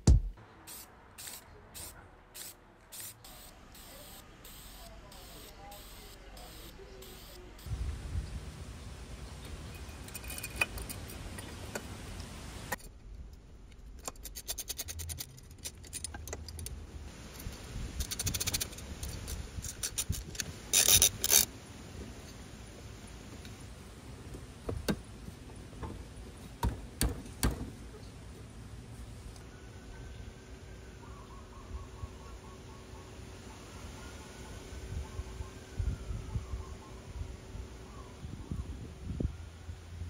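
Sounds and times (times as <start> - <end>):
nut and bolt clinking on metal: 9.7 - 11.8, 12.7 - 16.8.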